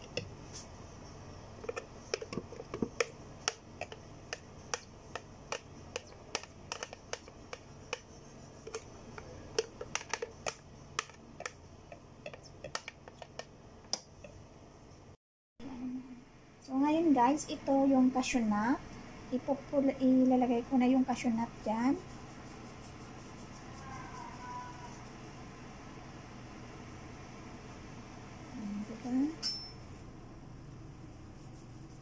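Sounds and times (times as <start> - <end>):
utensil tapping plastic jar: 1.6 - 11.6.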